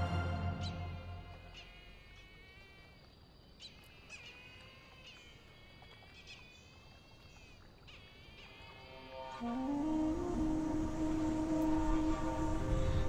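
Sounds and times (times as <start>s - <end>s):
birds of prey calling: 0.5s - 2.9s.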